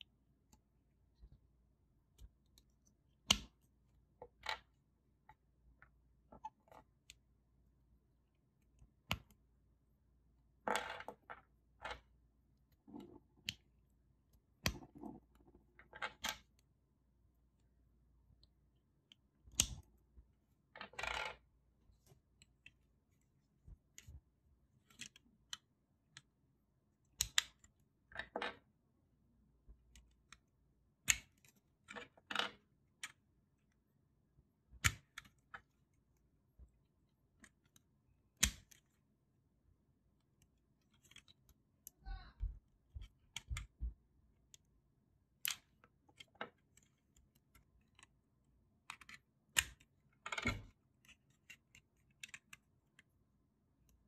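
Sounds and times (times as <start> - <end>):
plastic toy parts clicking: 14.6 - 16.7, 24.8 - 26.3, 27.0 - 28.6, 29.9 - 33.2, 45.4 - 53.1.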